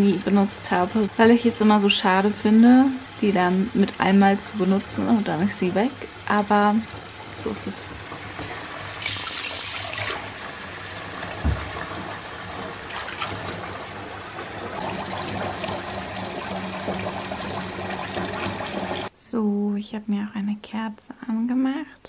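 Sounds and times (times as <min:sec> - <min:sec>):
tap water filling bathtub: 0:00.0 - 0:19.1
dull thump: 0:11.4 - 0:11.8.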